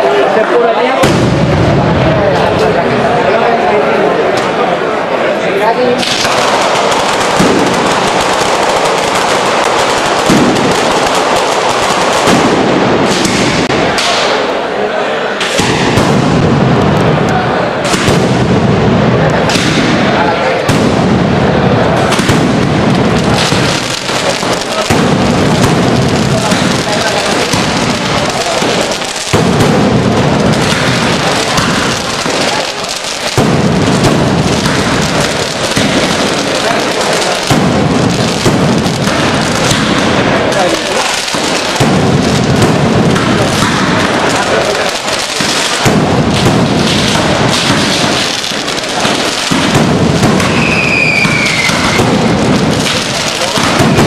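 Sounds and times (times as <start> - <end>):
firecrackers crackling: 0.0 - 54.0
heavier firecracker bangs: 0.9 - 3.3, 6.0 - 14.7, 15.3 - 54.0.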